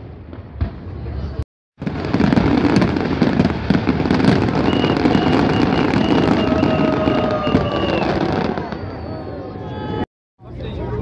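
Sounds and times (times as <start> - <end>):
fireworks crackling: 0.0 - 9.4
pulsing beep: 4.7 - 6.5.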